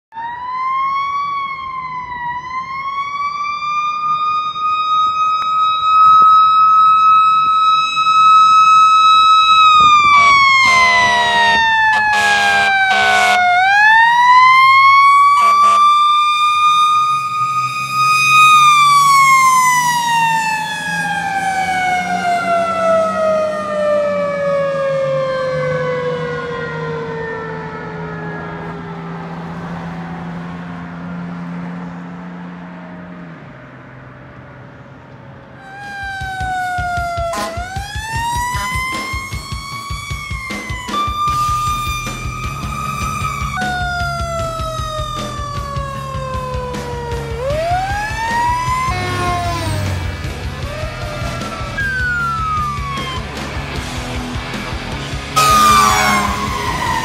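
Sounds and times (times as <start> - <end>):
fire engine siren wailing: 0.1 - 31.6, 35.5 - 57.0
truck engine rumbling: 2.6 - 57.0
loud horn blasts: 9.8 - 13.7, 15.2 - 16.0, 37.2 - 37.8, 48.8 - 50.2, 55.4 - 57.0.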